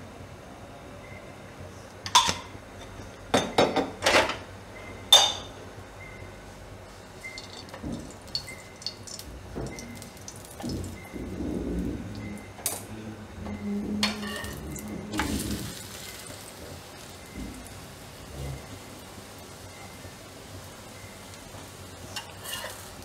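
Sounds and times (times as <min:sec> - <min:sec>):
oil crackling and sizzling: 0:06.9 - 0:12.8, 0:14.0 - 0:23.0
spatula knocking and scraping pan: 0:14.0 - 0:15.5.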